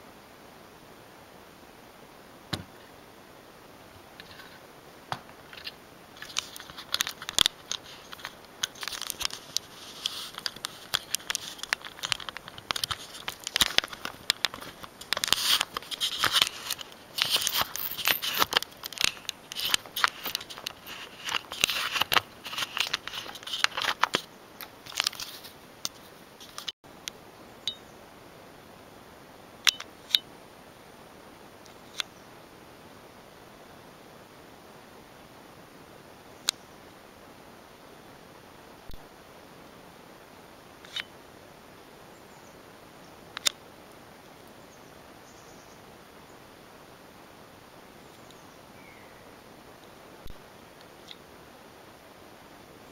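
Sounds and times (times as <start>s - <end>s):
crackling and crinkling with clicks: 5.2s - 26.8s.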